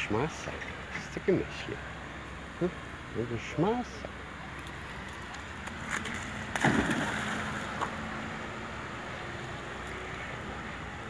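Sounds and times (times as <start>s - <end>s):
wind: 0.0s - 11.0s
rushing water: 4.6s - 8.3s
splash in water: 5.9s - 7.8s.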